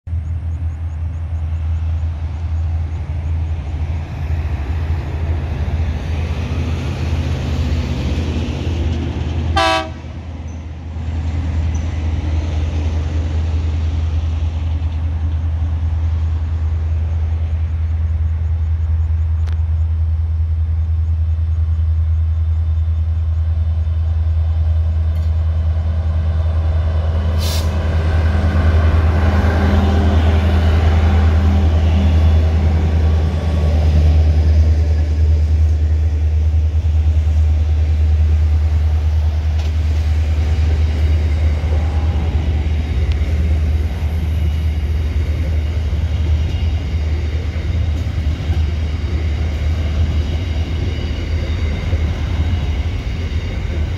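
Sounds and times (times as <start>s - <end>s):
locomotive engine rumble: 0.1s - 53.9s
train horn toot: 9.5s - 10.1s.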